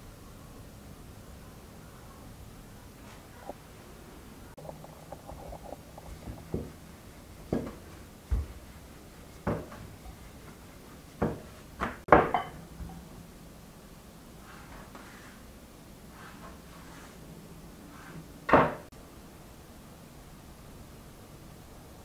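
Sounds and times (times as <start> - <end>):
rolling pin knocking on board: 9.4 - 9.8.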